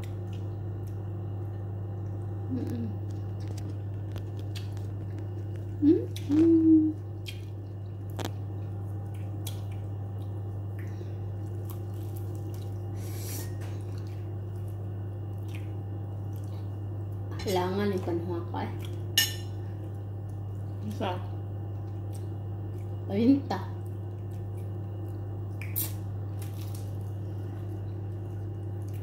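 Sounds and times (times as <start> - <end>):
people eating at a table: 0.0 - 23.1
steady low hum: 0.0 - 29.0.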